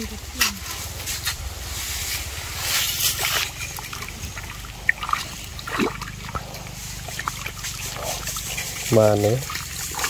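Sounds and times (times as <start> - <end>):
mud and water sloshing: 0.0 - 10.0
short sharp splashes: 2.8 - 10.0.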